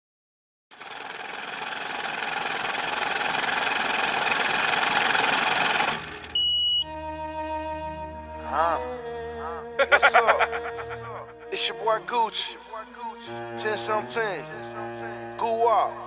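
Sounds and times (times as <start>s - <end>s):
short high beep: 6.4s - 6.9s
rap song: 11.0s - 16.0s.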